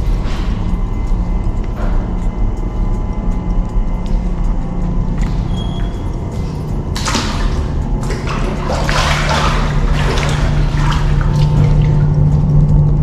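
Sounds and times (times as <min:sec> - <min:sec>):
steady low hum: 0:00.0 - 0:13.0
water running into tubs: 0:05.1 - 0:13.0.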